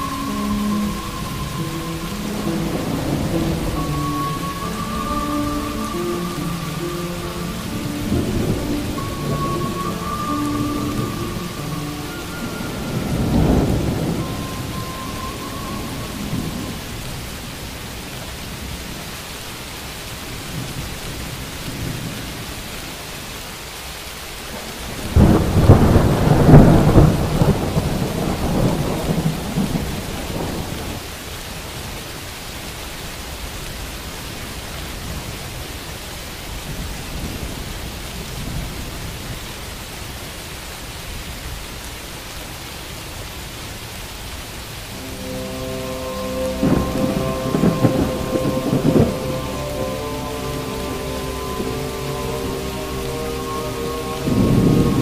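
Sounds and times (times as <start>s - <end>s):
thunder rumbling: 0.0s - 19.0s, 24.5s - 31.1s, 44.9s - 55.0s
steady rain: 0.0s - 55.0s
loud thunderclap: 25.0s - 31.0s, 46.2s - 50.0s.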